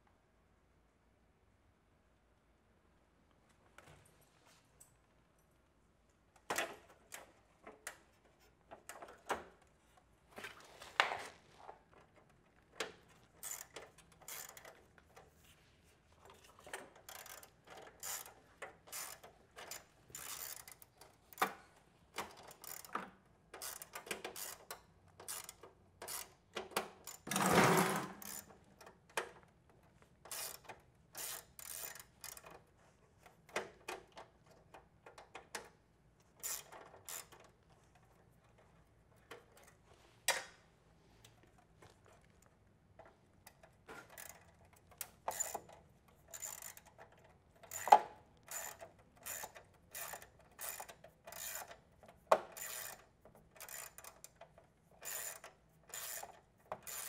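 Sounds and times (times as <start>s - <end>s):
metallic clicks and scrapes: 10.4s - 29.4s, 30.2s - 40.6s, 41.2s - 57.0s.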